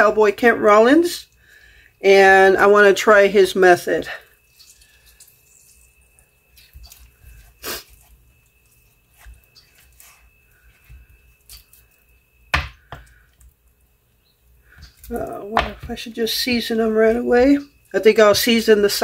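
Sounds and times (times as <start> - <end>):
wet squelches: 4.1 - 16.6
knocks on cutting board: 12.5 - 13.0.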